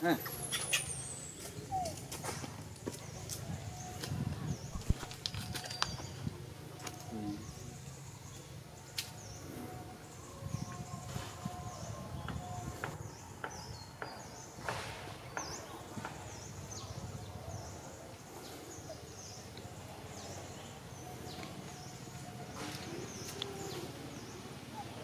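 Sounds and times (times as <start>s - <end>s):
high chirping calls: 0.0s - 2.0s.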